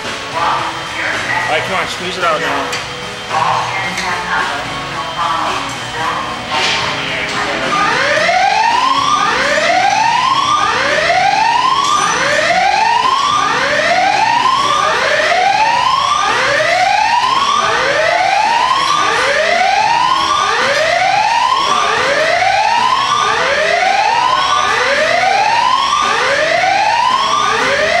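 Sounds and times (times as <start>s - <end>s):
siren-like sweeping tone: 6.9s - 28.0s.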